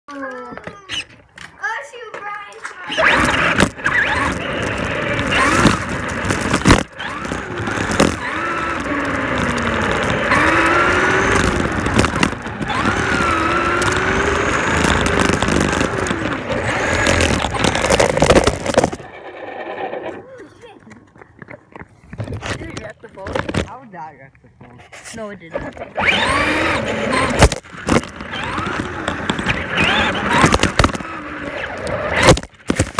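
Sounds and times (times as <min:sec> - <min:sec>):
tyre and drivetrain rush: 0:02.8 - 0:23.7, 0:25.6 - 0:32.9
toy truck motor whine: 0:02.9 - 0:20.3, 0:25.9 - 0:32.9.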